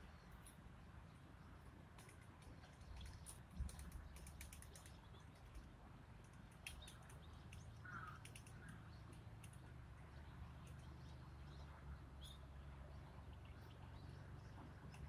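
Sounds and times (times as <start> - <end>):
faint clicks: 1.9 - 9.8, 10.5 - 11.1, 14.8 - 15.0
faint bird chirps: 6.6 - 15.0.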